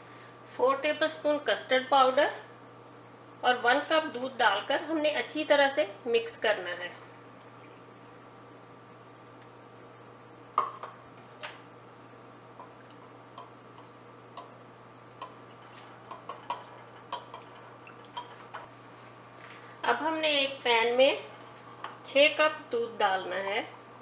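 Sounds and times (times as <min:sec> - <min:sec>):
faint steady hum: 0:00.0 - 0:24.0
spoon clinking against ceramic bowl: 0:16.1 - 0:18.4.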